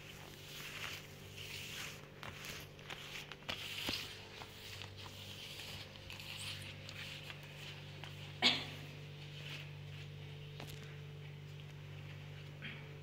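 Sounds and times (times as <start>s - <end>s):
cloth wiping plastic tablecloth: 0.0s - 8.4s
low steady hum: 0.0s - 13.0s.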